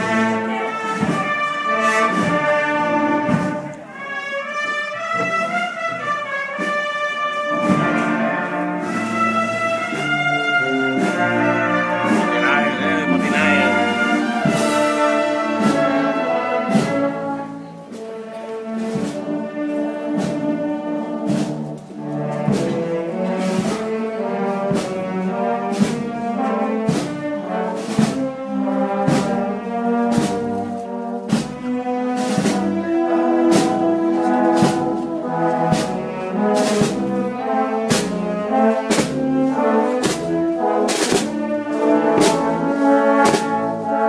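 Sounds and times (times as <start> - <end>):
brass band playing slow chords: 0.0 - 44.0.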